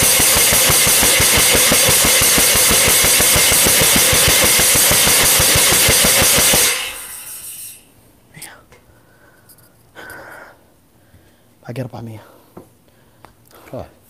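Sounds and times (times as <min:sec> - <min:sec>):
rapid mechanical rattle with hiss: 0:00.0 - 0:07.9.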